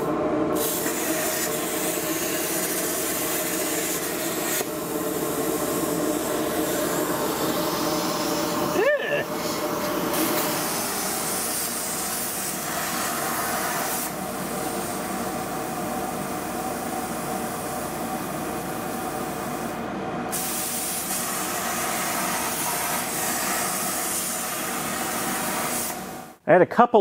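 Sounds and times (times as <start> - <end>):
plasma cutter hissing: 0.6 - 15.4, 20.3 - 26.1.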